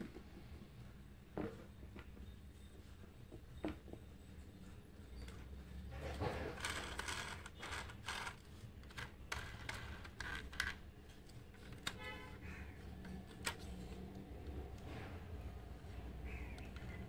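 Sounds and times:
metal toy car clicking in hands: 0:06.6 - 0:10.8.

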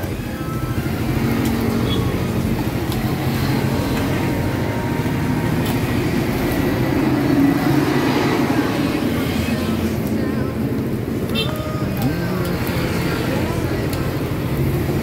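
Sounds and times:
vehicle engines rumbling: 0:00.0 - 0:15.0.

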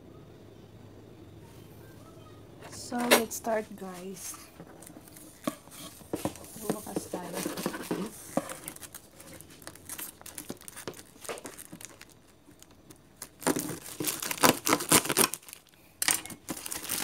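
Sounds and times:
plastic shrink wrap crinkling: 0:03.8 - 0:17.0
plastic wrap tearing: 0:04.7 - 0:17.0.

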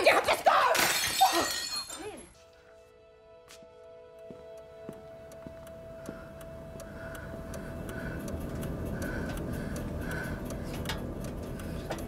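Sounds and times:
car engine rumble: 0:05.7 - 0:12.0.

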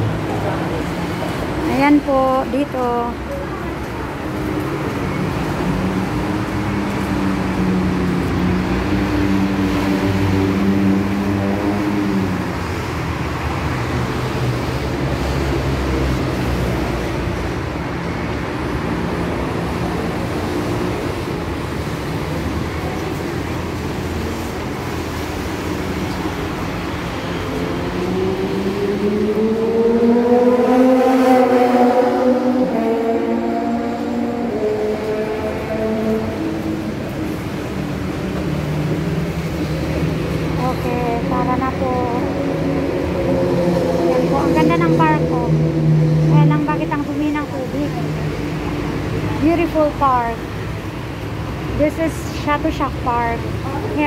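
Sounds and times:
rush of traffic: 0:00.0 - 0:54.0
engine drone: 0:22.6 - 0:52.2.

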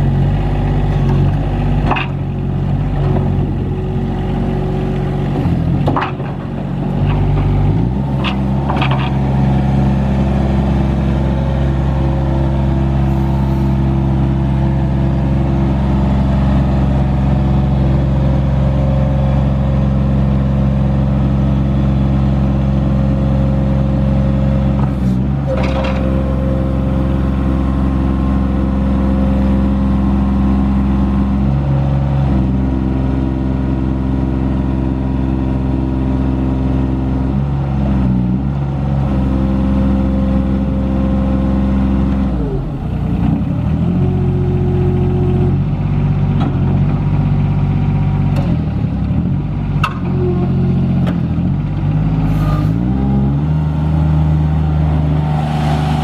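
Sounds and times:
diesel engine revving: 0:00.0 - 0:56.0.

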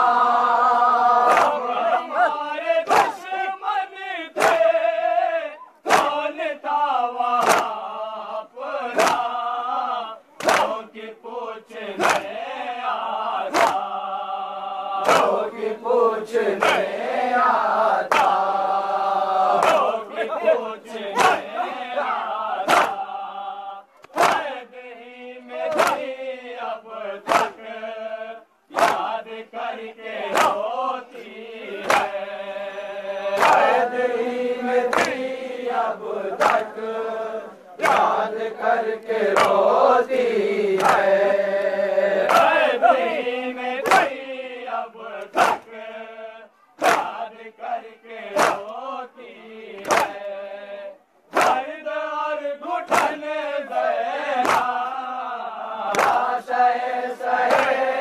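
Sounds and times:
lead reciter singing: 0:00.0 - 0:58.0
men singing lament in chorus: 0:00.0 - 0:58.0
unison chest-beating slaps: 0:01.2 - 0:03.4, 0:04.4 - 0:05.0, 0:05.8 - 0:06.4, 0:07.2 - 0:08.0, 0:08.8 - 0:09.6, 0:10.3 - 0:10.9, 0:11.9 - 0:14.2, 0:14.9 - 0:15.5, 0:16.6 - 0:17.0, 0:18.0 - 0:18.7, 0:19.5 - 0:23.2, 0:24.0 - 0:24.6, 0:25.5 - 0:26.2, 0:27.2 - 0:27.8, 0:28.7 - 0:29.3, 0:30.2 - 0:32.2, 0:33.3 - 0:33.9, 0:34.9 - 0:35.3, 0:36.3 - 0:36.8, 0:37.8 - 0:43.2, 0:43.8 - 0:44.2, 0:45.1 - 0:46.0, 0:46.8 - 0:48.8, 0:49.7 - 0:50.4, 0:51.3 - 0:51.7, 0:52.8 - 0:55.2, 0:55.8 - 0:58.0.

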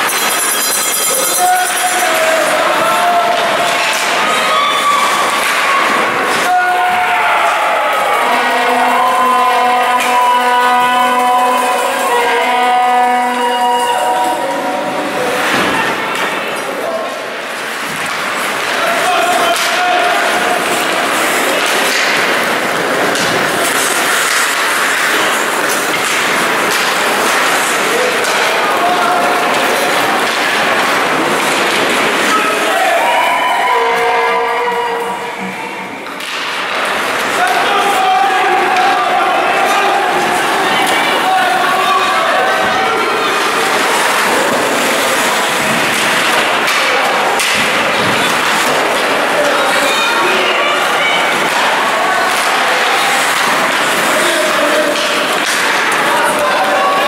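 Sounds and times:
crowd noise in arena: 0:00.0 - 0:57.0
skates scraping ice: 0:00.0 - 0:57.0
sticks hitting puck: 0:01.3 - 0:10.5, 0:17.7 - 0:33.1, 0:35.9 - 0:57.0
skates hissing on ice: 0:20.6 - 0:28.2.

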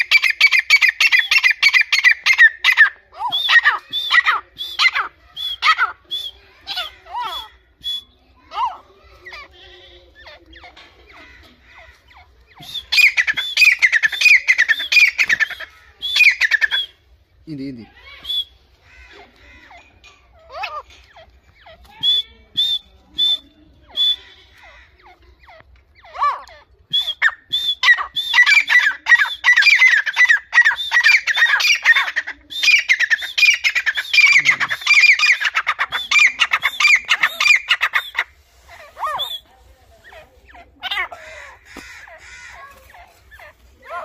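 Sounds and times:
francolin calling: 0:11.2 - 0:17.0, 0:26.9 - 0:44.0.

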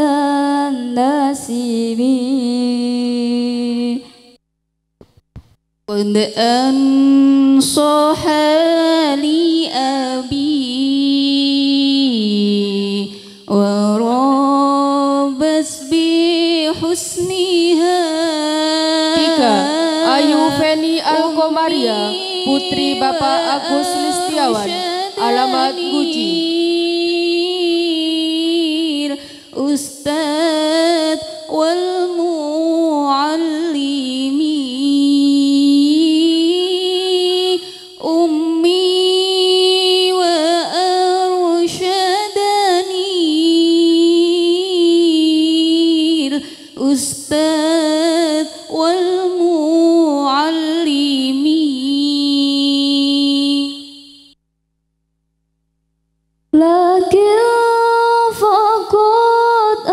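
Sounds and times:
woman singing: 0:00.0 - 0:04.3, 0:05.9 - 0:54.1, 0:56.6 - 0:59.9
singer breathing: 0:13.1 - 0:13.5, 0:29.2 - 0:29.6, 0:46.4 - 0:46.8.

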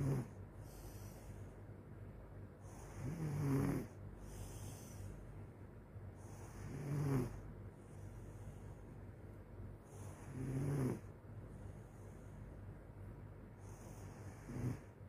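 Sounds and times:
person snoring: 0:00.0 - 0:01.2, 0:02.6 - 0:05.0, 0:06.3 - 0:07.4, 0:09.9 - 0:11.1, 0:13.6 - 0:14.9.

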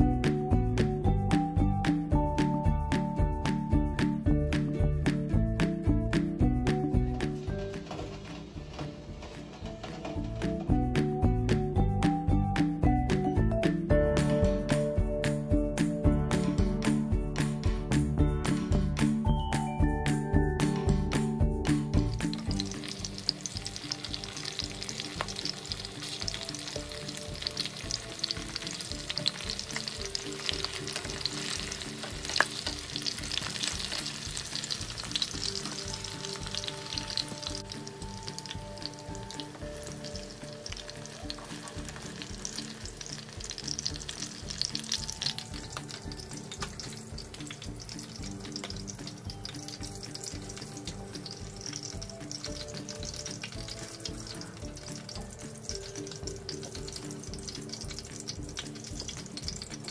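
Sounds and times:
food sizzling in oil: 0:19.5 - 0:59.9.

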